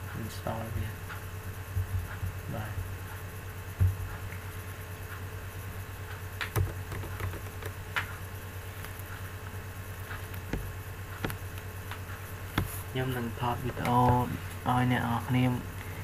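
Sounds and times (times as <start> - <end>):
steady low hum: 0.0 - 16.0
keyboard and mouse clicks: 6.4 - 8.1.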